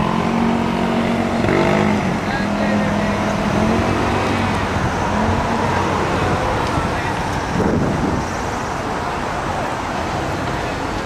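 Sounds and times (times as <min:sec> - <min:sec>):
hum of car traffic: 0:00.0 - 0:11.0
passers-by voices: 0:00.0 - 0:11.0.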